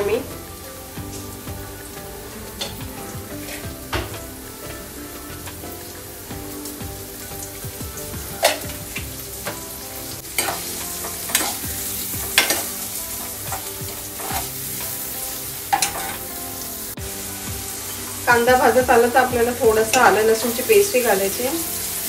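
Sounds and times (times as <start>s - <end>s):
onions sizzling in hot oil: 0.0s - 22.0s.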